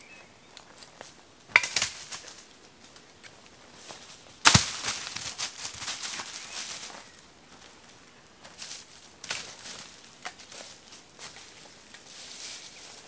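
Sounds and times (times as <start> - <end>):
footsteps in dry leaves: 3.6 - 13.0
dog running through dry leaves: 4.5 - 7.2.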